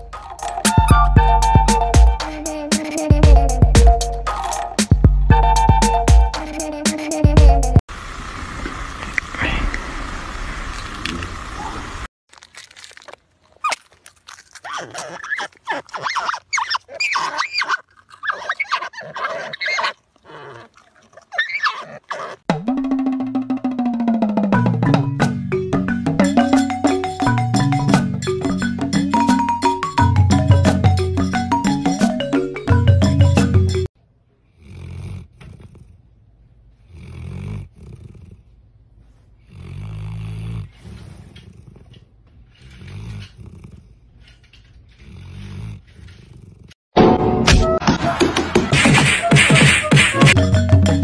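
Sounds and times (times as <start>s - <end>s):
marmots squealing: 14.6s - 20.7s, 21.3s - 22.4s
dog snoring: 34.5s - 36.1s, 36.8s - 38.6s, 39.4s - 44.1s, 45.0s - 46.8s.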